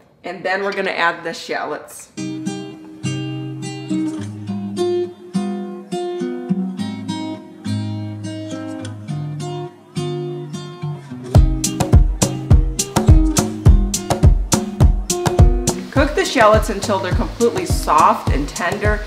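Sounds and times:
acoustic guitar melody: 2.2s - 19.0s
percussive hits: 11.4s - 15.8s
bass notes: 11.4s - 18.5s.

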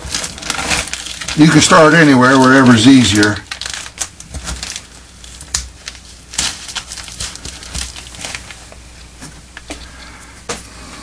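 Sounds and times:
plastic tarp crinkling: 0.0s - 8.8s.

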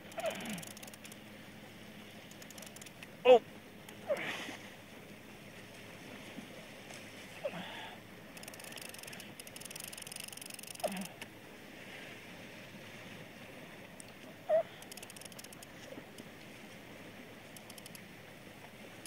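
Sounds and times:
fishing reel clicking: 0.0s - 1.2s, 2.3s - 3.0s, 8.3s - 11.2s, 14.8s - 16.3s, 17.5s - 18.1s.

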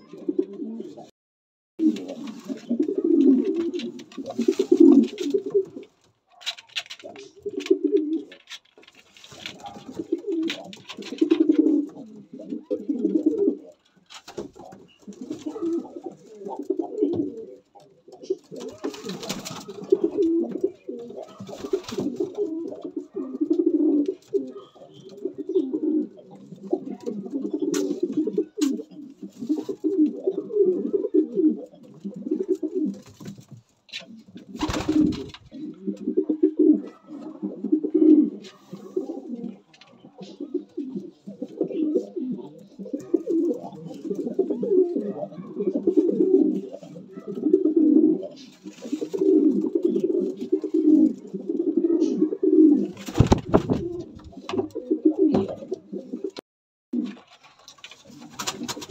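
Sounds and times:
pigeons cooing: 0.0s - 1.1s, 1.8s - 56.4s, 58.0s - 58.9s
rustling knocks: 53.2s - 55.7s.

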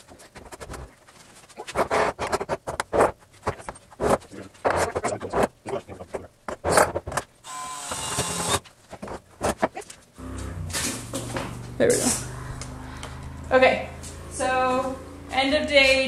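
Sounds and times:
drill driving screws into wood: 7.4s - 8.6s.

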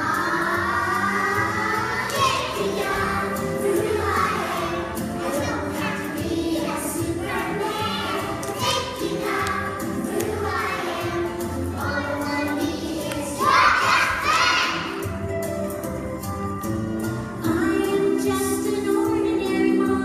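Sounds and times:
children singing: 0.0s - 15.1s
backing music: 0.0s - 20.0s.

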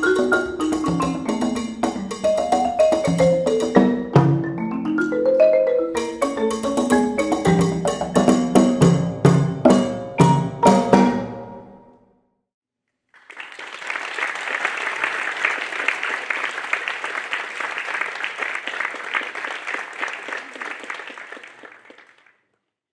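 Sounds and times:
marimba chord ringing: 0.0s - 11.7s
audience applauding: 13.1s - 22.5s.

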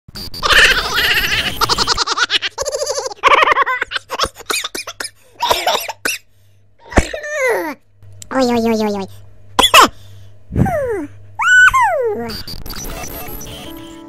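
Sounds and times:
laughter and giggling: 0.4s - 4.8s.

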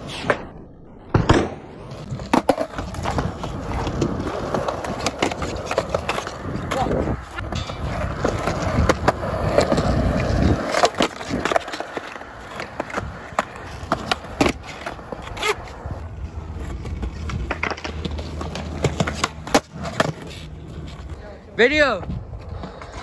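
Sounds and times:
skateboard wheels rumbling on concrete: 0.0s - 23.0s
skateboard clacks and knocks: 2.1s - 15.6s.

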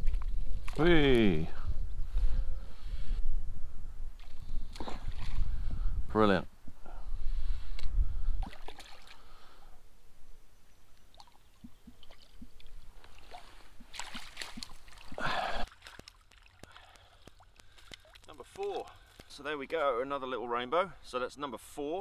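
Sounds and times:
fish splashing and thrashing: 8.4s - 9.4s, 11.1s - 19.3s
net scooping splash: 13.3s - 16.6s.

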